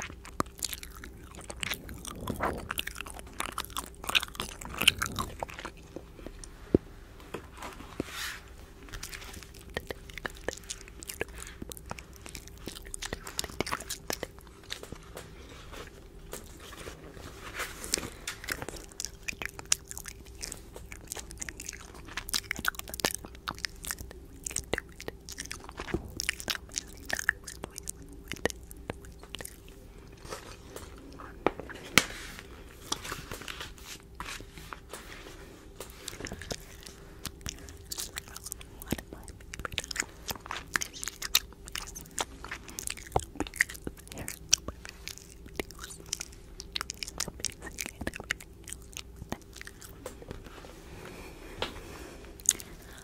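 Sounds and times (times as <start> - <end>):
wet lip and tongue clicks: 18.6 - 29.7, 36.1 - 50.0.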